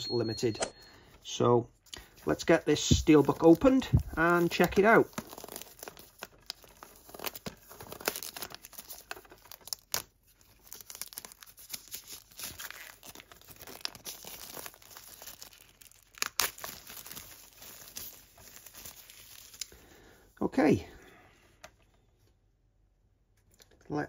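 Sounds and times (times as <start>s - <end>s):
plastic shrink-wrap crinkling: 2.0s - 19.9s
plastic wrap snapping: 2.9s - 19.8s.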